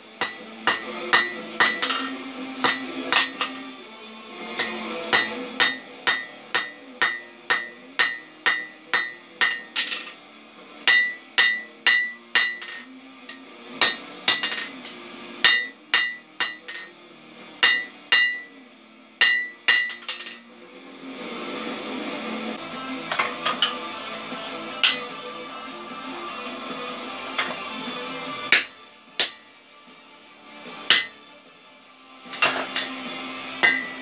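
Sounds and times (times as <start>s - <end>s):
hammer striking metal on anvil: 0.2s - 3.6s, 4.6s - 10.2s, 10.8s - 17.0s, 17.6s - 18.6s, 19.2s - 20.4s, 24.8s - 25.2s, 28.5s - 29.5s, 30.8s - 31.3s, 32.3s - 34.0s.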